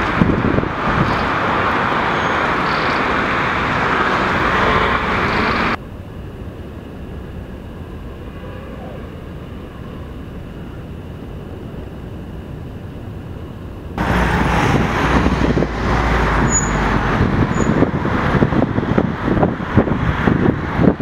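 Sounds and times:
wind thumping on microphone: 0:00.0 - 0:05.8, 0:14.0 - 0:21.0
rough rushing noise: 0:14.0 - 0:21.0.

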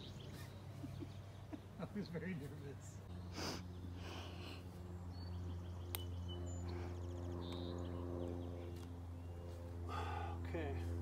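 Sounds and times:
bird chirps and trill: 0:00.0 - 0:01.8, 0:03.0 - 0:09.5
low hum: 0:00.0 - 0:11.0.

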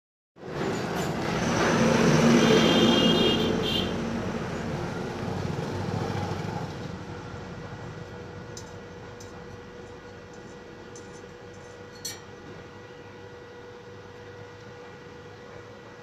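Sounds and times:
motor vehicle passing by: 0:00.4 - 0:08.1.

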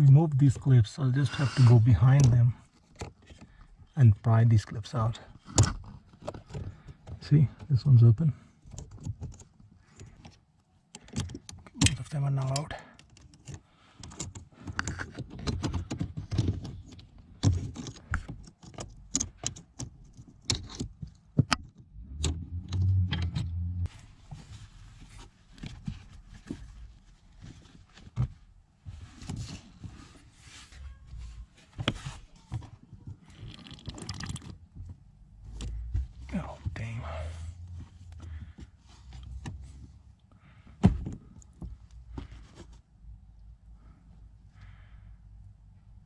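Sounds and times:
rag rubbing over pipes: 0:01.2 - 0:02.0.

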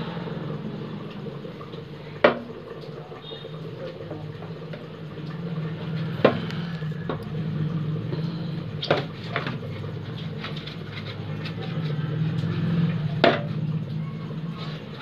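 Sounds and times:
steady low hum: 0:00.0 - 0:15.0
plastic bottle knocking on concrete: 0:06.2 - 0:06.5.

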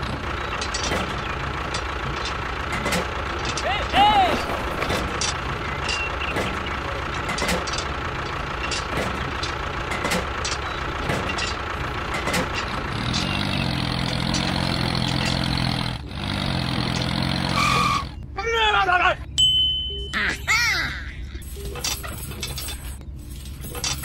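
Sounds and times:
tractor-like engine running: 0:00.0 - 0:18.4.

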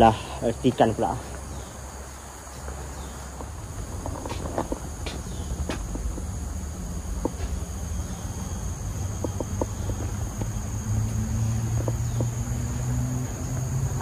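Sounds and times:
high-pitched insect drone: 0:00.0 - 0:14.0
footsteps: 0:02.5 - 0:06.4.

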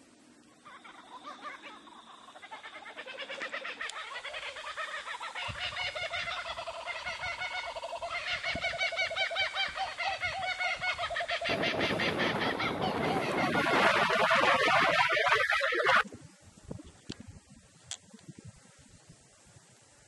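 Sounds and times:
flock of birds chattering: 0:00.0 - 0:16.0.

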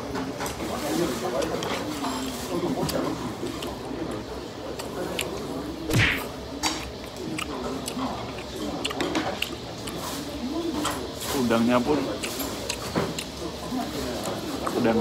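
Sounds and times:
loud rushing burst: 0:05.9 - 0:06.3
person chewing: 0:06.8 - 0:10.0, 0:12.2 - 0:13.4.

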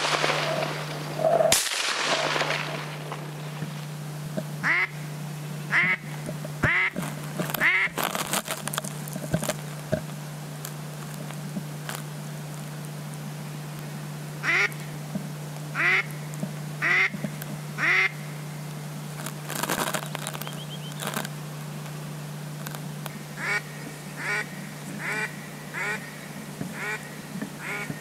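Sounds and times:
duck call quacks: 0:04.6 - 0:05.0, 0:05.7 - 0:07.0, 0:07.6 - 0:08.0, 0:14.4 - 0:14.8, 0:15.8 - 0:16.1, 0:16.8 - 0:17.1, 0:17.8 - 0:18.2, 0:23.4 - 0:26.1, 0:26.7 - 0:28.0.

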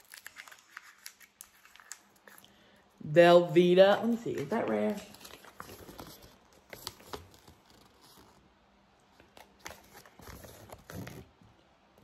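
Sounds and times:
paper crinkling and ticking: 0:00.0 - 0:02.5, 0:03.9 - 0:08.4.

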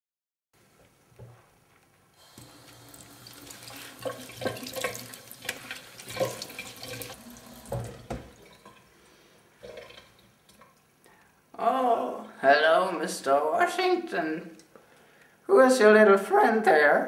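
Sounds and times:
tap water running into sink: 0:02.2 - 0:08.9, 0:09.6 - 0:10.8
knocks: 0:07.7 - 0:08.4.

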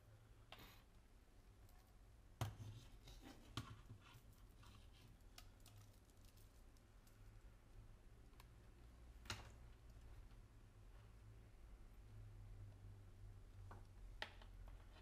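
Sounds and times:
cables and plastic connectors clicking: 0:03.5 - 0:07.4.

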